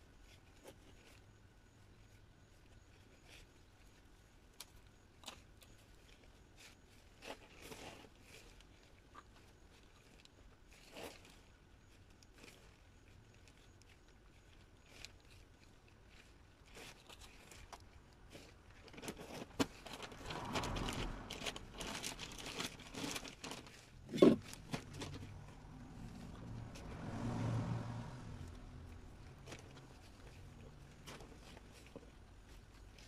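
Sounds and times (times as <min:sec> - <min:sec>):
plastic bag rustling: 0:15.0 - 0:26.8
hand trowel scraping soil: 0:18.5 - 0:33.0.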